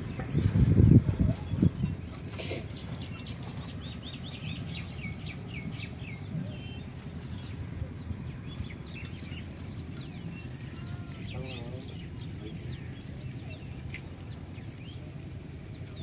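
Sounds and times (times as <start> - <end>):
small birds chirping: 0.0 - 16.0.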